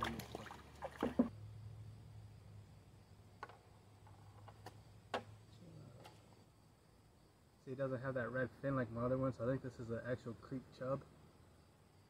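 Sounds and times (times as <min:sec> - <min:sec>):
fish splashing: 0:00.0 - 0:01.3.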